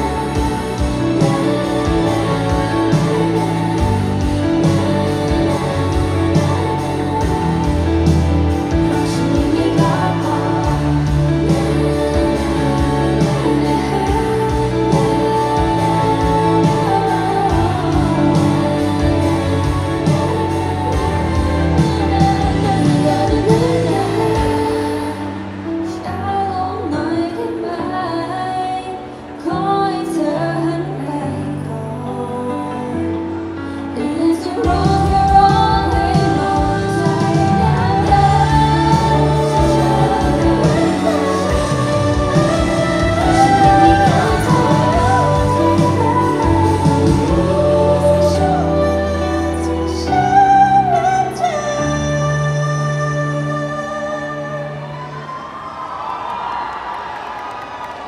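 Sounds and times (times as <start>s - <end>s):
bass line: 0.0s - 25.5s, 34.6s - 55.0s
woman singing into microphone: 0.0s - 55.4s
live pop music: 0.0s - 58.0s.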